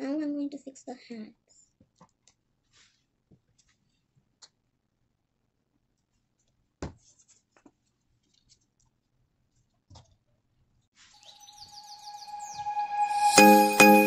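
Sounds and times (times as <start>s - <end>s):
music with bird chirps: 11.2s - 14.0s.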